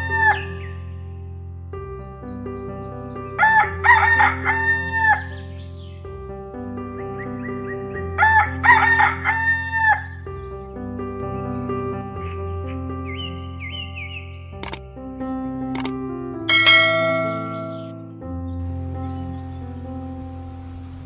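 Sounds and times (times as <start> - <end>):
background music with sustained chords: 0.0 - 21.0
rooster crowing: 3.4 - 5.3, 8.2 - 10.2.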